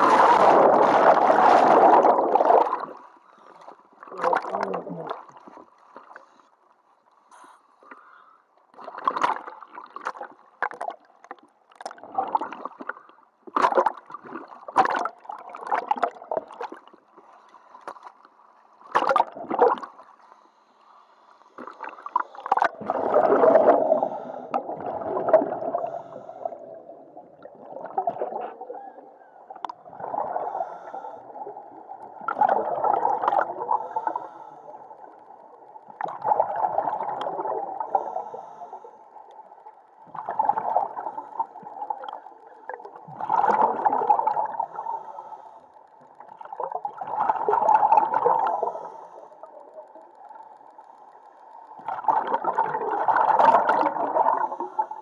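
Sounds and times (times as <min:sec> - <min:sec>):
underwater regulator exhale bubbles: 0:00.0 - 0:03.0, 0:21.6 - 0:35.2, 0:35.9 - 0:38.8, 0:40.1 - 0:45.4, 0:46.2 - 0:49.9, 0:51.8 - 0:55.0.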